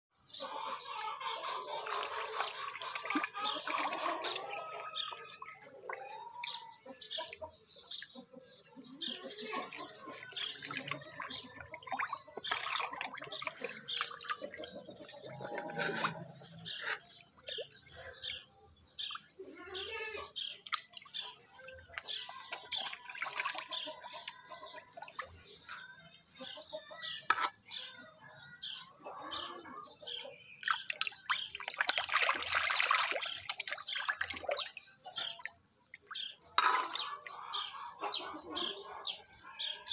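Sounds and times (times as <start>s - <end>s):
fish splashing at water surface: 9.6s - 14.7s, 30.6s - 37.1s
fish splashing at surface: 30.6s - 34.8s.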